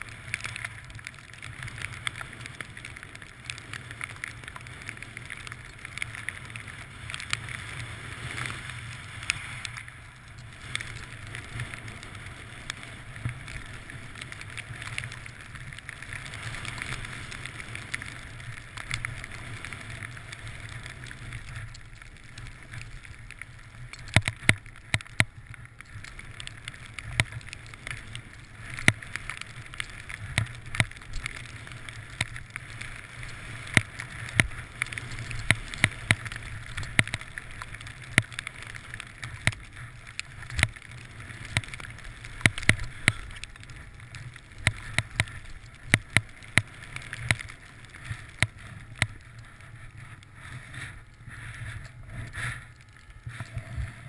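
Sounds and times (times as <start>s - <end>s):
skis hissing through snow: 6.9s - 9.7s, 49.4s - 54.0s.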